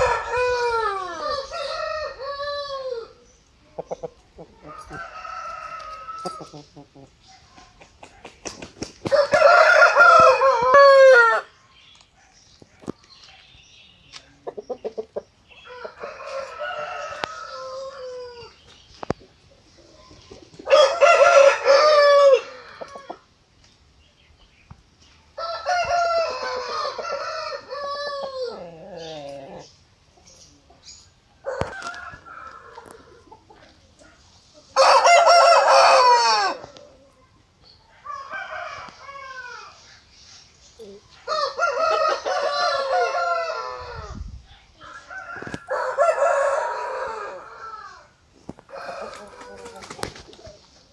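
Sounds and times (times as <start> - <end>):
rooster crowing: 0.0 - 3.2, 9.1 - 11.5, 15.7 - 18.5, 20.7 - 23.2, 25.4 - 29.1, 34.8 - 36.6, 41.3 - 44.1, 44.8 - 48.1, 48.7 - 49.8.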